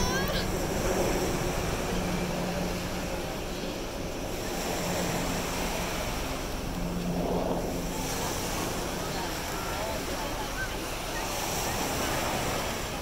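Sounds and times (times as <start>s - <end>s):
small surf breaking on beach: 7.5s - 13.0s.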